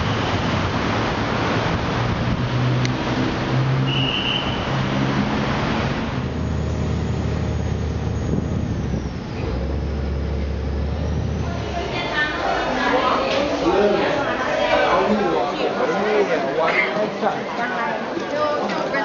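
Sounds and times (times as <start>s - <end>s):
boat engine drone: 0.0s - 12.9s
road traffic: 0.0s - 16.2s.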